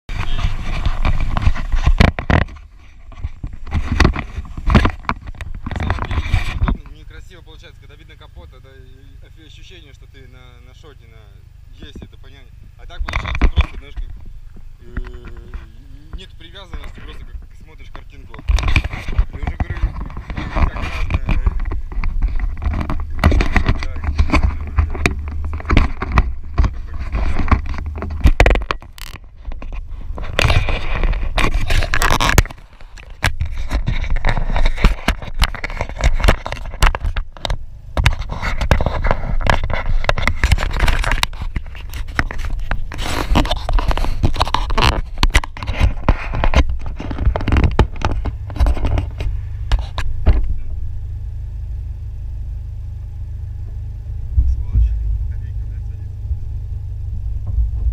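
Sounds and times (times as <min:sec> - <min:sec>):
low steady rumble: 0:00.1 - 0:57.9
camera handling noise: 0:22.6 - 0:37.2.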